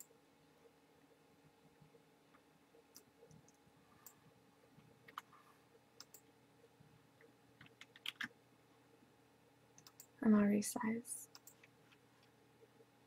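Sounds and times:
low room hum: 0.0 - 13.0
computer mouse clicks: 2.9 - 4.2, 4.8 - 5.3, 6.0 - 6.3, 9.8 - 10.2, 11.3 - 12.3.

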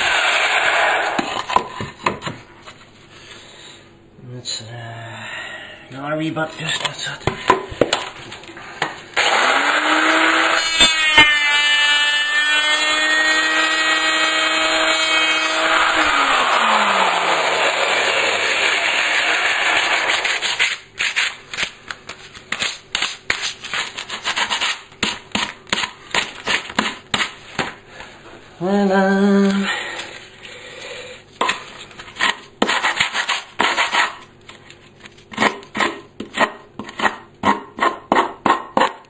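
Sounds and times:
power tool motor whining: 9.2 - 20.4.

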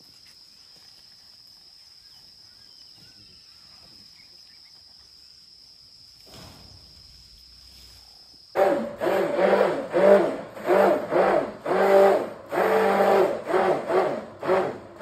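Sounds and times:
insects droning: 0.0 - 15.0
faint bird chirps: 1.8 - 5.4.

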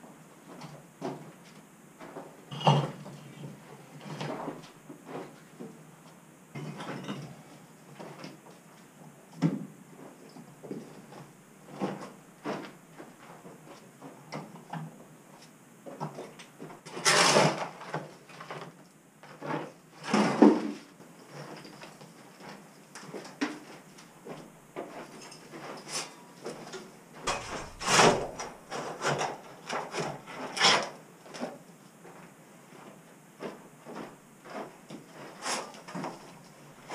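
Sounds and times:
brick rubble knocking and clattering: 27.3 - 28.8.

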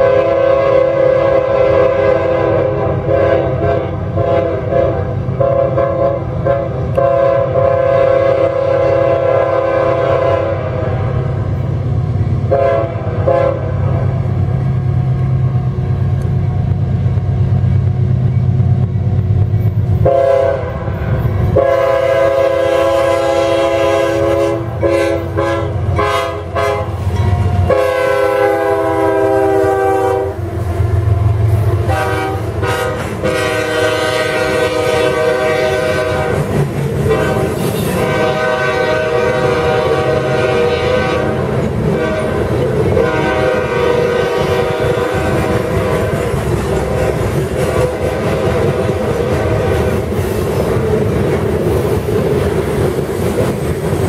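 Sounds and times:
locomotive air horn blasts: 0.0 - 11.4, 12.5 - 14.0, 20.0 - 30.5, 31.8 - 46.2
wheels clacking on rails: 11.2 - 54.0.

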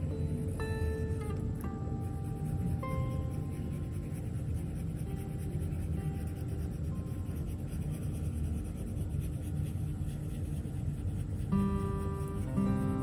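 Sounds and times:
faint background music: 0.0 - 13.0
crayon rubbing on paper: 2.0 - 13.0.

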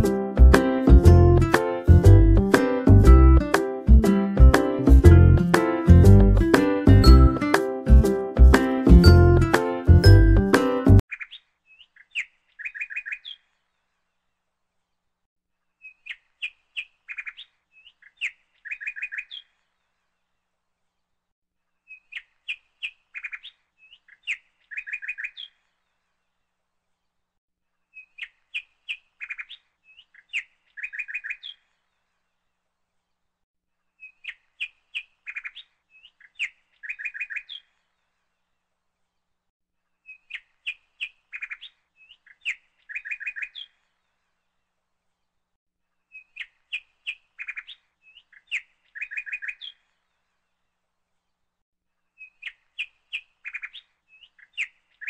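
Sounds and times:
bird chirping: 11.1 - 13.8, 15.8 - 19.8, 21.8 - 26.0, 27.9 - 32.0, 34.0 - 38.1, 40.0 - 44.2, 46.0 - 50.3, 52.1 - 55.0.

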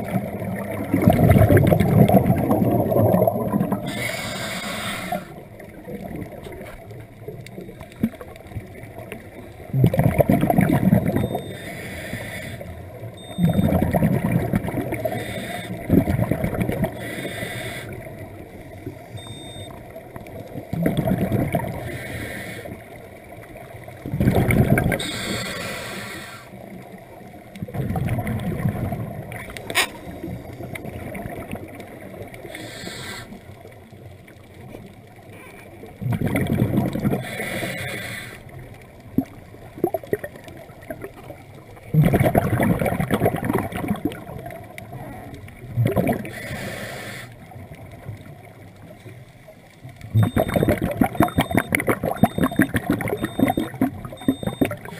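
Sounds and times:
exhaled bubbles underwater: 0.0 - 54.9
regulator inhalations: 3.9 - 5.4, 11.4 - 12.7, 17.0 - 18.0, 25.0 - 26.5, 32.5 - 33.4.

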